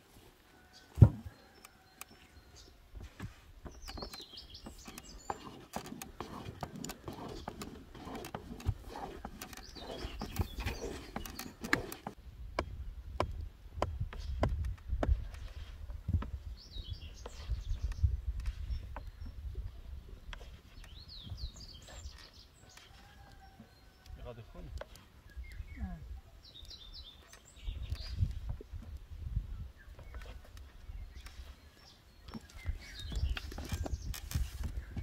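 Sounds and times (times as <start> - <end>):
birds chirping: 0.6 - 12.7, 16.4 - 35.0
sharp wooden knocks: 3.2 - 15.3.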